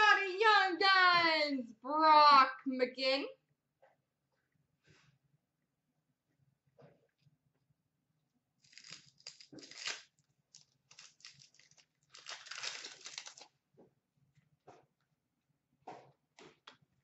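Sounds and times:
foil wrappers crinkling and tearing: 8.6s - 13.6s.

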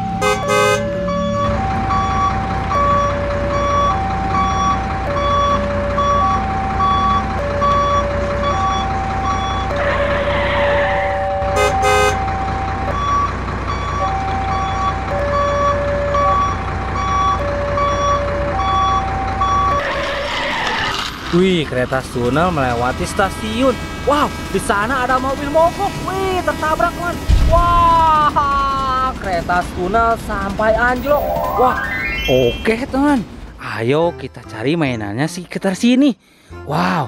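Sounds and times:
two-tone electronic alarm: 0.0s - 20.2s, 30.6s - 32.7s
rushing noise: 9.7s - 11.6s, 19.7s - 21.5s
short high beeps: 30.7s - 32.8s.

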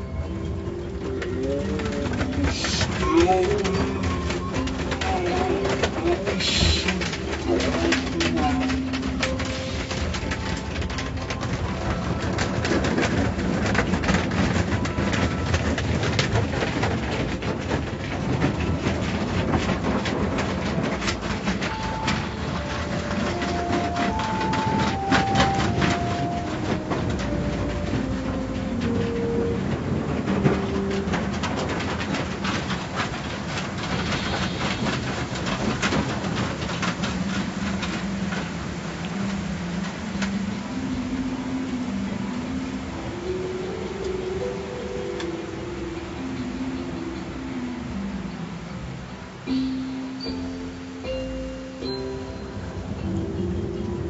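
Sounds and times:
car wash rushing and rumbling: 0.0s - 54.0s
irregular clicks and knocks: 0.0s - 54.0s
car wash rushing hiss: 6.3s - 10.4s, 32.4s - 48.3s.

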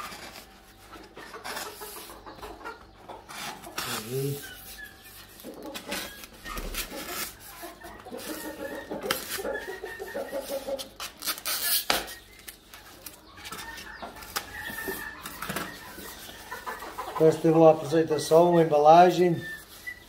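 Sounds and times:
scraping polystyrene: 0.0s - 2.0s, 3.3s - 15.5s
chickens clucking: 0.0s - 20.0s
scissors cutting tape: 11.0s - 13.2s.

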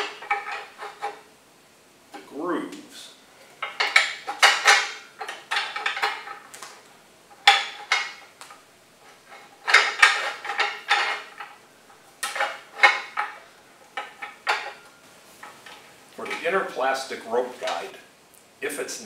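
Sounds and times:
metal clinking and rattling: 0.0s - 1.2s, 3.6s - 6.6s, 7.3s - 16.6s.

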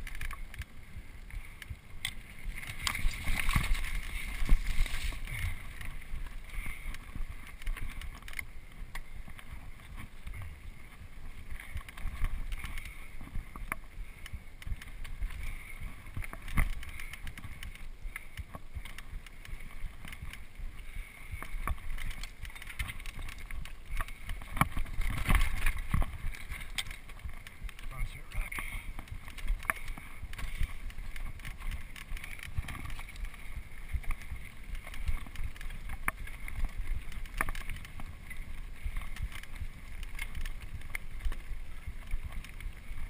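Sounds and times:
bike knocking and rattling: 0.0s - 43.0s.

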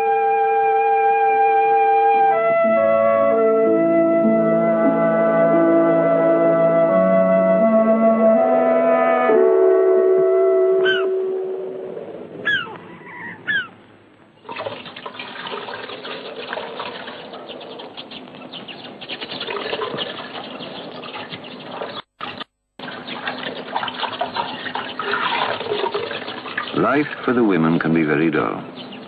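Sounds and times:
gull calling: 10.7s - 13.9s
water sloshing in a metal washtub: 14.4s - 18.2s, 19.1s - 26.8s.

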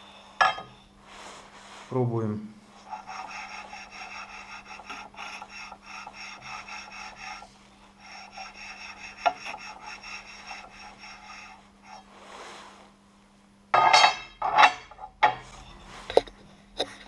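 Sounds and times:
metal straightedge scraping metal: 13.8s - 15.6s.

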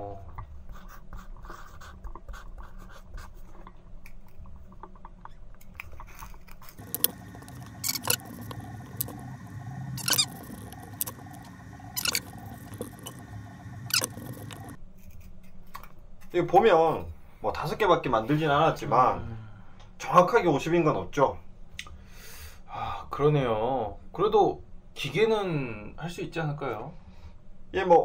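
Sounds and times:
pen scratching on paper: 6.8s - 14.8s
sharp clicks: 6.8s - 14.8s
steady hum with held tones: 6.8s - 14.8s.

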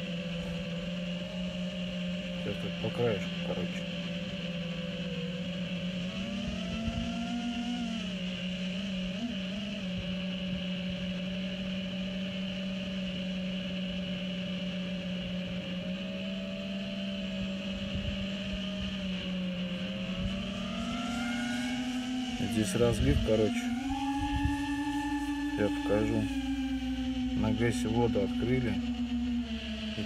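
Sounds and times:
drone propellers humming: 0.0s - 30.0s
wind rumbling on microphone: 5.0s - 8.2s, 17.2s - 21.0s, 22.2s - 26.6s.

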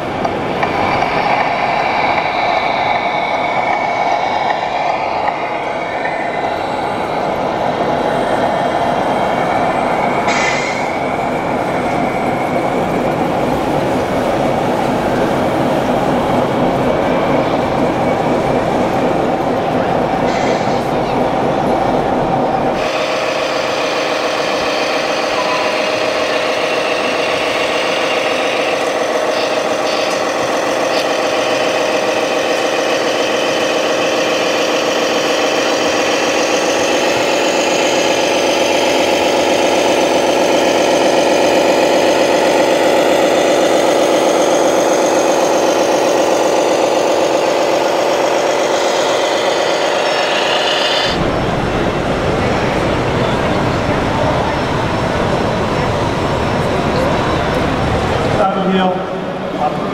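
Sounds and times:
diesel engine sound from speaker: 23.7s - 59.9s.

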